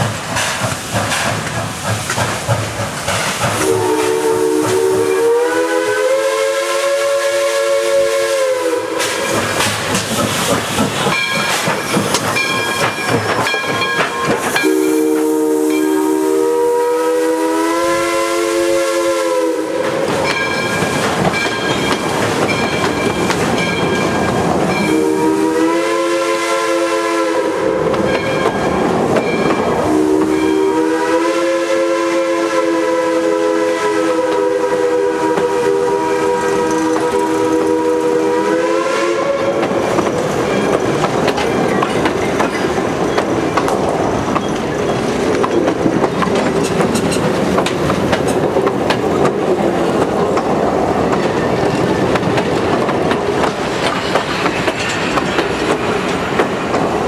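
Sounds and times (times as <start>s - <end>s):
wheels clicking over rail joints: 0.0s - 3.8s, 9.0s - 14.8s, 19.8s - 24.9s, 39.5s - 57.0s
steam hissing and exhausting: 0.0s - 13.4s, 14.0s - 57.0s
steam whistle blasts: 3.6s - 9.4s, 14.6s - 20.1s, 24.8s - 28.1s, 29.8s - 39.7s.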